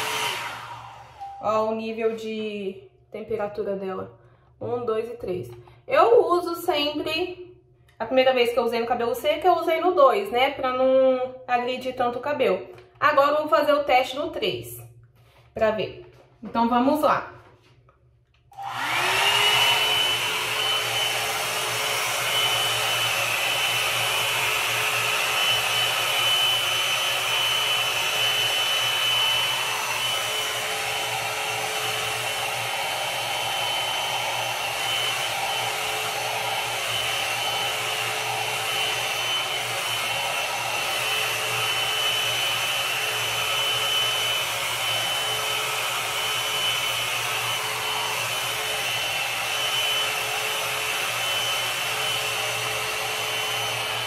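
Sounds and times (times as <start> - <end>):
hot air brush fan whine: 0.0 - 1.4, 18.5 - 54.0.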